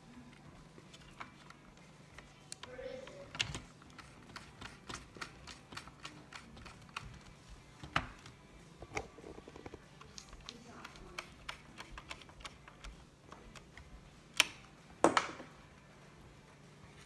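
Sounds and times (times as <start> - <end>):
screwdriver clicking on plastic: 2.2 - 14.6.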